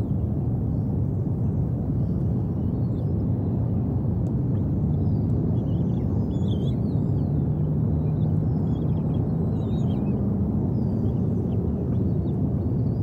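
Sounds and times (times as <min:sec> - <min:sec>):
low outdoor rumble: 0:00.0 - 0:13.0
birds chirping and whistling: 0:05.0 - 0:07.3, 0:08.0 - 0:12.2.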